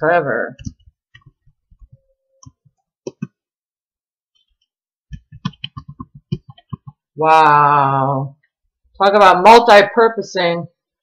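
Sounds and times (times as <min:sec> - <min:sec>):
keyboard typing: 0:00.6 - 0:03.4, 0:04.4 - 0:07.0.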